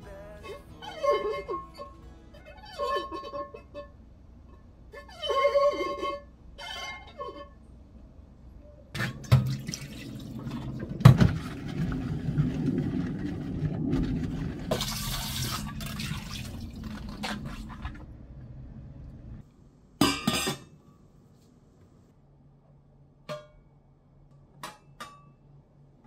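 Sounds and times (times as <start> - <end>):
water running into metal pot: 9.0 - 13.0, 14.2 - 18.0.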